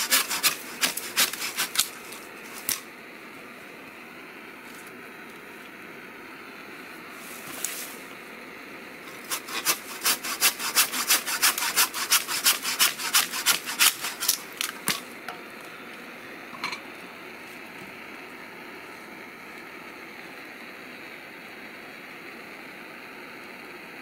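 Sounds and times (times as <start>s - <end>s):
rhythmic rasping strokes: 0.0s - 1.9s, 9.1s - 14.4s.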